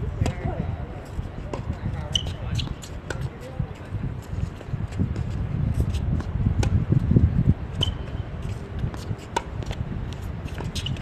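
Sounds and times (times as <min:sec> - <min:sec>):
steady low rumble: 0:00.0 - 0:11.0
tennis ball struck by racket: 0:06.2 - 0:06.8, 0:08.8 - 0:11.0.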